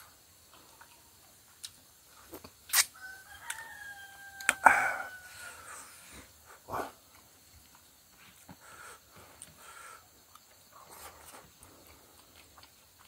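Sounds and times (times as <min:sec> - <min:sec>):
rooster crowing: 0:02.9 - 0:05.8.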